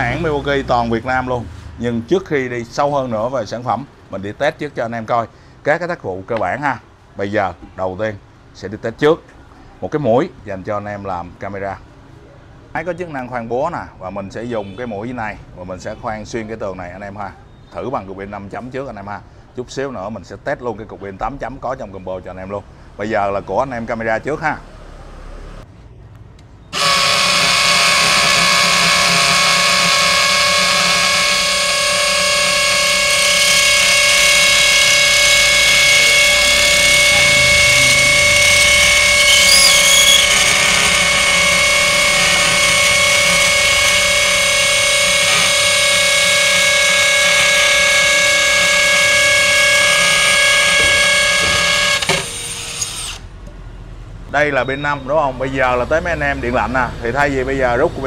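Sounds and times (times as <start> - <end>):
hammer drill boring into concrete: 26.8 - 53.3.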